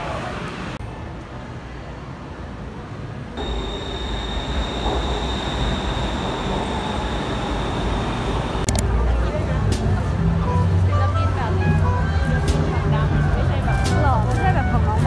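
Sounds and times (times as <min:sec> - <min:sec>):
high whine: 0:03.4 - 0:09.0
train rumble: 0:03.4 - 0:15.0.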